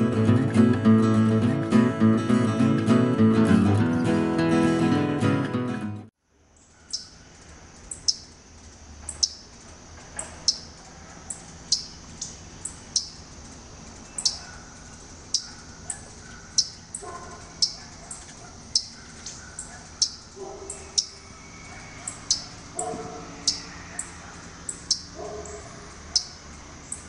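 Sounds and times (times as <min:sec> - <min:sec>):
songbird chip notes: 0:06.6 - 0:09.6, 0:10.4 - 0:27.0.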